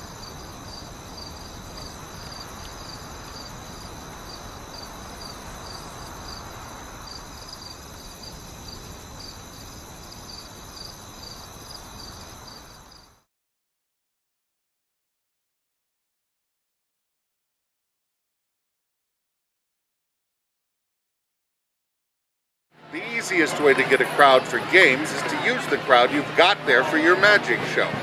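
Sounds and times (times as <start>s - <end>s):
high insect trill: 0.0s - 13.2s
crickets chirping: 0.0s - 13.3s.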